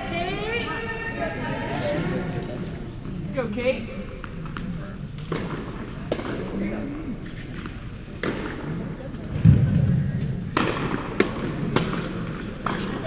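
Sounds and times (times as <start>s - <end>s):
racket striking ball: 5.2s - 6.6s, 7.6s - 8.7s, 10.5s - 13.0s
tennis ball bouncing: 5.3s - 6.5s, 10.6s - 13.0s
heavy thud: 9.4s - 11.0s.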